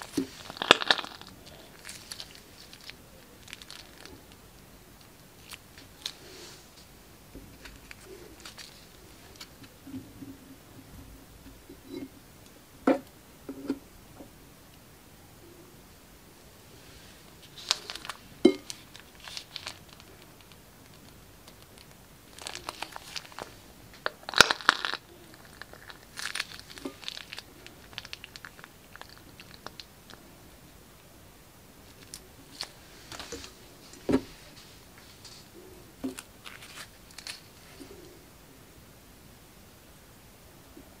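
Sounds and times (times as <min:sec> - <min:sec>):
plastic piping bag crinkling: 0:00.0 - 0:09.7, 0:17.2 - 0:30.3, 0:31.8 - 0:38.0.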